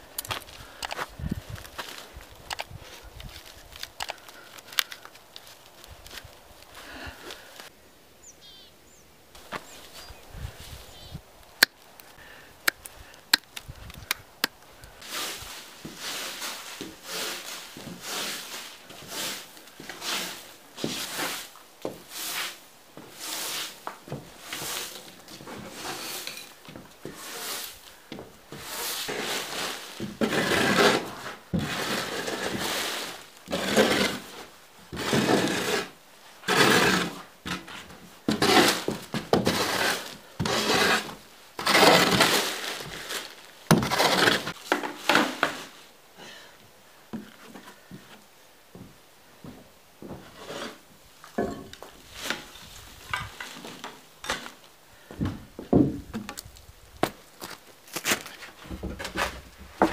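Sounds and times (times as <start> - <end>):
metal shovel scraping concrete: 15.0 - 27.8, 28.5 - 45.8, 50.3 - 54.6
broom sweeping concrete: 15.0 - 45.9, 50.3 - 50.9, 52.0 - 54.6.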